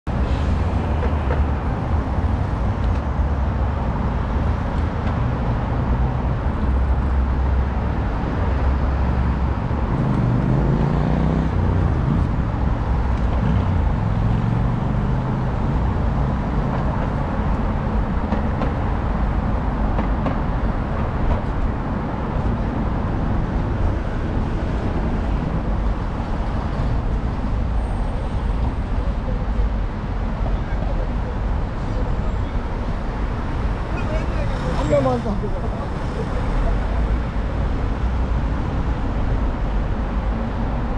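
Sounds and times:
road traffic rumble: 0:00.0 - 0:40.9.

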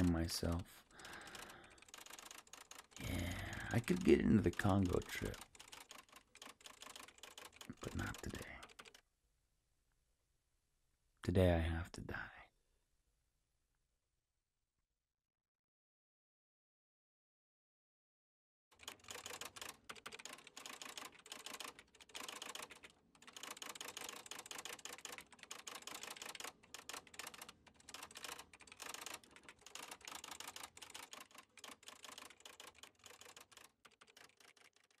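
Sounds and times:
typewriter keys striking: 0:01.0 - 0:09.0, 0:18.8 - 0:35.0.

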